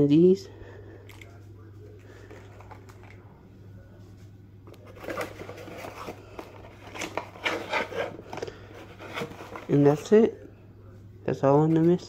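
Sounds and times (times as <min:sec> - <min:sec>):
cardboard scraping and rustling: 0:04.8 - 0:10.0.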